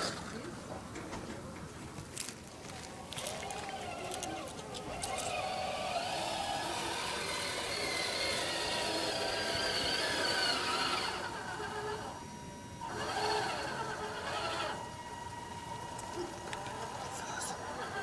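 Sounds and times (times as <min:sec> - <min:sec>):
toy truck electric motor whining: 0:02.6 - 0:18.0.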